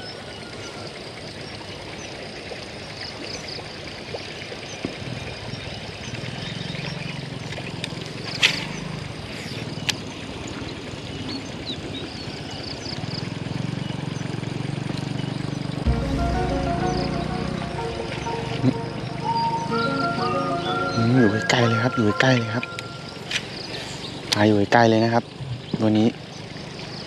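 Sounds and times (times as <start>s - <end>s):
vehicle engine humming: 15.9s - 24.0s.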